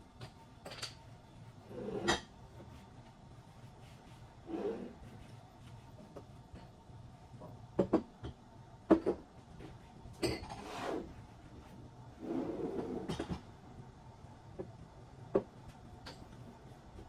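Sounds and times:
objects knocking on cabinet top: 7.8s - 9.3s.

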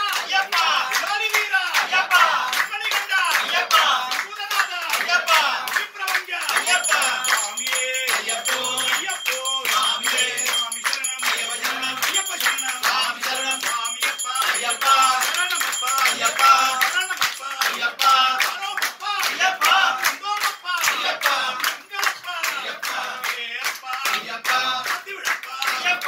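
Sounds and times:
group singing in unison: 0.0s - 26.0s
hand-clapping: 0.0s - 26.0s.

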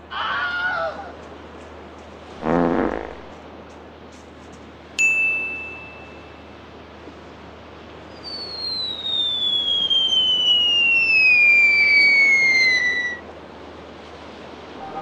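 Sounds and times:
steady background hiss: 0.0s - 15.0s
descending whistle sound effect: 8.2s - 13.2s.

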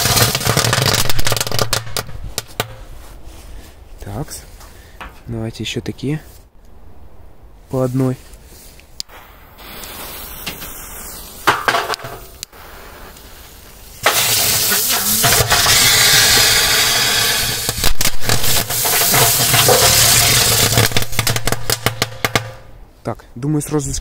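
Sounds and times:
fireworks hissing: 0.0s - 2.9s, 7.7s - 22.4s
fireworks crackling: 0.0s - 3.2s, 6.7s - 22.7s.

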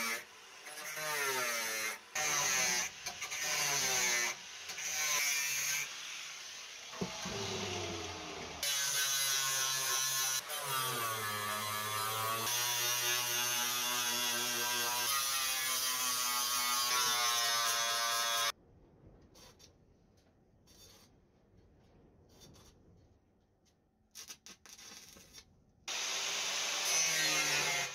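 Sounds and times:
angle grinder grinding metal: 0.0s - 6.0s, 7.0s - 18.5s, 26.0s - 27.9s.

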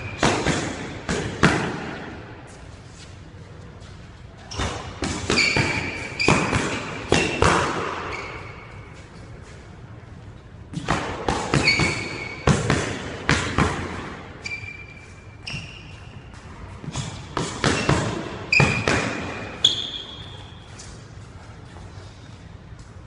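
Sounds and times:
shoes squeaking on hardwood floor: 3.8s - 7.4s, 8.0s - 9.2s, 11.6s - 12.4s, 14.4s - 16.4s, 17.7s - 21.7s.

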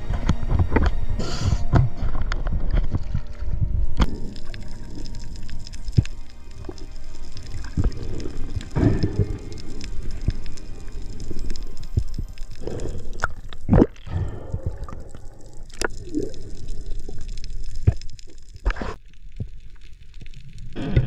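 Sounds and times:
low underwater rumble: 0.0s - 21.0s
bubbly gurgles: 2.8s - 19.0s.

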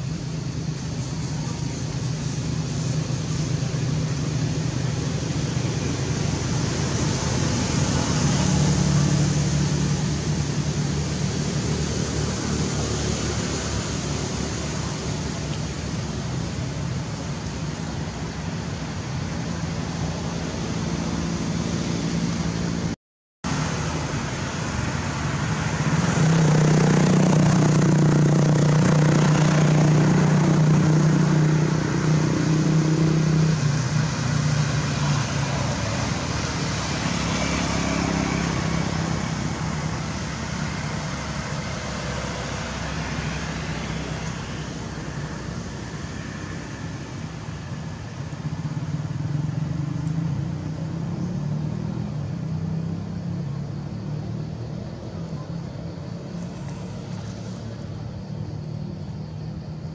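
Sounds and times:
vehicle engine running: 0.0s - 59.0s.

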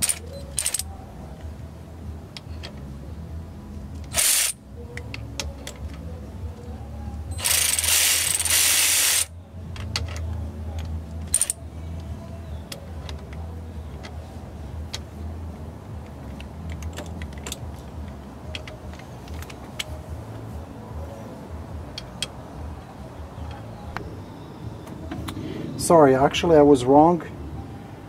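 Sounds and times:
hand ratchet clicking: 0.0s - 0.9s, 4.0s - 6.0s, 7.4s - 10.2s, 11.2s - 11.6s.

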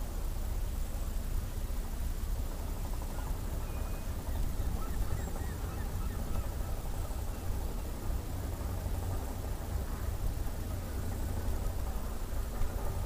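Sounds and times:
wind buffeting microphone: 1.8s - 13.0s
faint bird calls: 3.1s - 8.0s.

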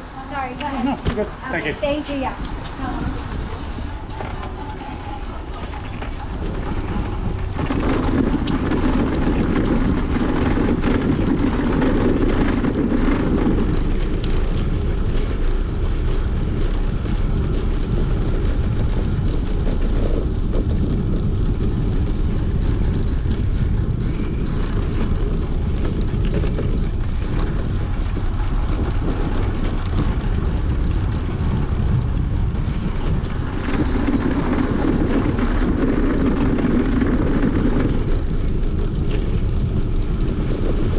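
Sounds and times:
wind rumble on microphone: 0.0s - 40.9s.

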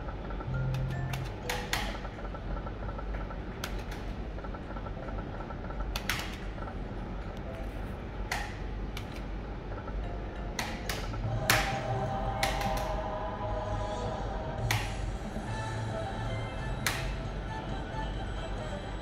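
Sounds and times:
steady low hum: 0.0s - 19.0s
slot machine reel clicks: 0.3s - 3.0s.

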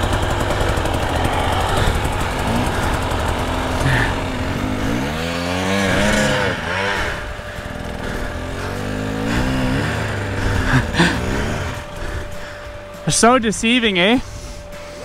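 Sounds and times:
dirt bike engine revving: 0.0s - 15.0s.

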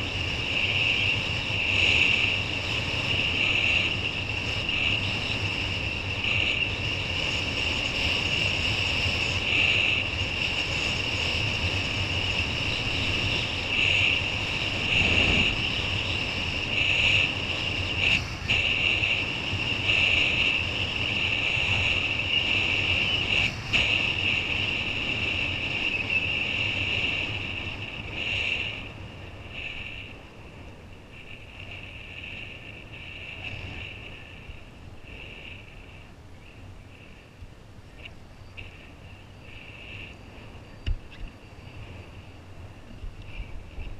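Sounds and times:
wind rushing over camera: 0.0s - 43.9s
steady high whistle: 12.4s - 18.0s
water noise: 14.4s - 16.6s.

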